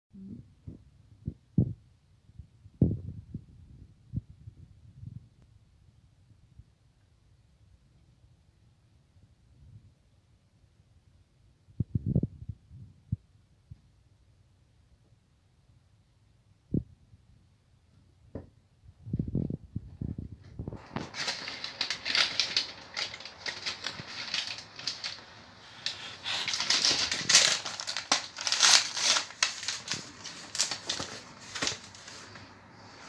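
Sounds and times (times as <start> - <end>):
plastic wrapping crinkling and tearing: 20.6 - 32.5.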